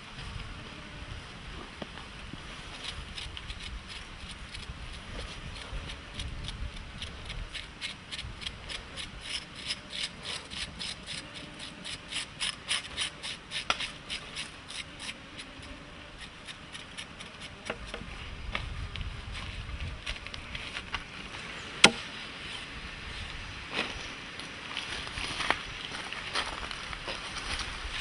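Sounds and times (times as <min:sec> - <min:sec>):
knife scraping meat: 0:02.8 - 0:18.0
sharp knock: 0:21.8 - 0:22.0.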